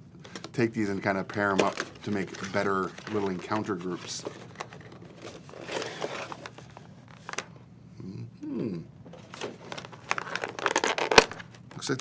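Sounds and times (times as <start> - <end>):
packaging rustling: 0.2 - 7.5, 9.1 - 12.0
person humming: 8.0 - 8.9.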